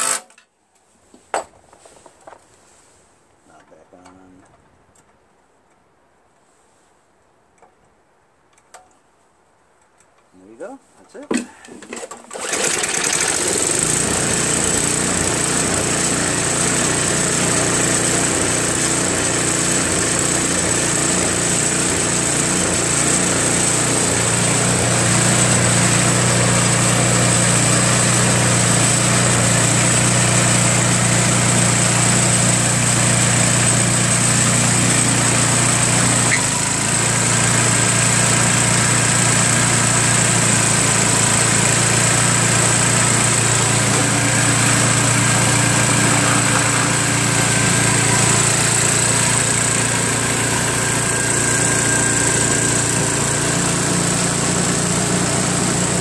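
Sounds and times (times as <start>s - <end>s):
snowblower engine running: 12.3s - 56.0s.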